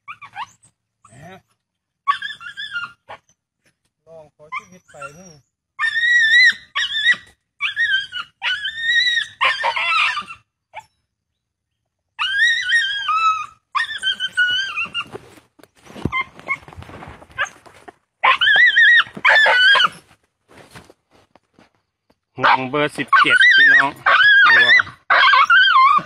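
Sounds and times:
dog yelping and whining: 0:00.0 - 0:01.2, 0:02.0 - 0:03.3, 0:04.5 - 0:11.0, 0:12.2 - 0:20.1, 0:22.4 - 0:26.0
rustling and scuffling in brush: 0:14.4 - 0:18.0, 0:19.9 - 0:21.8.

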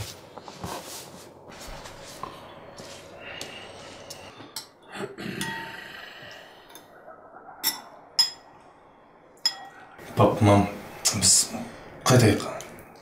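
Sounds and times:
sharp ringing china clink: 0:09.4 - 0:09.7
crockery and cutlery clinking: 0:09.4 - 0:09.8.

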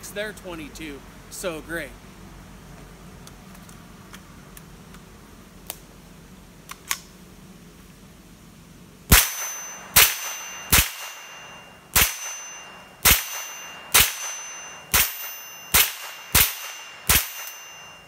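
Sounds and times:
rifle shots with ringing tail: 0:09.1 - 0:18.0.

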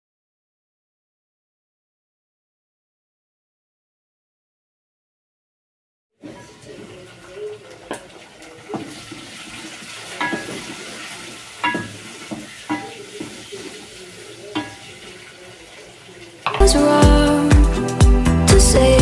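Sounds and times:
wooden spoon stirring in a pot: 0:06.2 - 0:16.6
faint sizzle: 0:06.2 - 0:17.5
spoon knocking against pot: 0:10.2 - 0:10.8, 0:11.6 - 0:13.4, 0:14.6 - 0:14.9
background music: 0:16.5 - 0:19.0.

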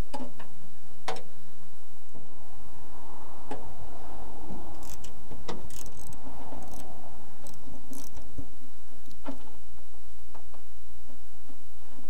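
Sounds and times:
ratchet wrench clicking: 0:04.8 - 0:05.1, 0:05.7 - 0:08.2.

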